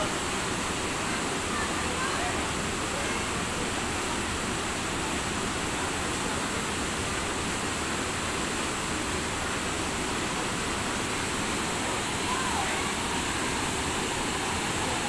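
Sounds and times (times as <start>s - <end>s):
water rushing over rocks: 0.0s - 15.0s.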